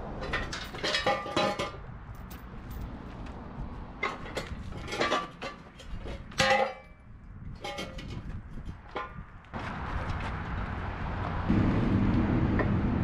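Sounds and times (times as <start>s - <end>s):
metal parts clanking: 0.2s - 2.9s, 4.0s - 8.3s.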